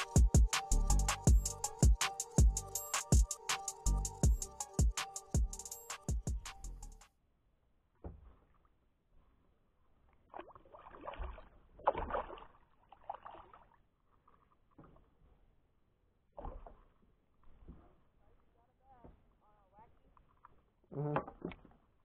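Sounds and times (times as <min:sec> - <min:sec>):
water splashing: 0:10.3 - 0:13.8.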